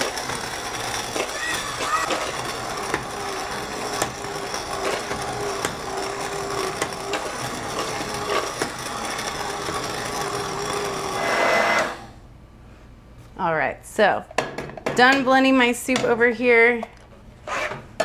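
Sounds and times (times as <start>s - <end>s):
immersion blender churning liquid: 0.0s - 12.0s.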